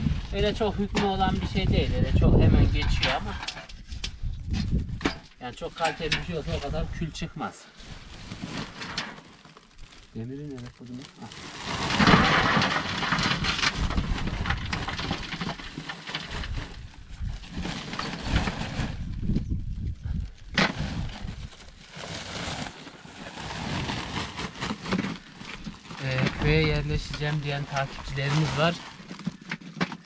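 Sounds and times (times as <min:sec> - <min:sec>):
sack rustling: 0:07.7 - 0:19.2, 0:20.6 - 0:29.4
fuel cakes pouring into metal buckets: 0:07.8 - 0:19.1, 0:20.9 - 0:29.0
pieces dropping: 0:11.2 - 0:16.5.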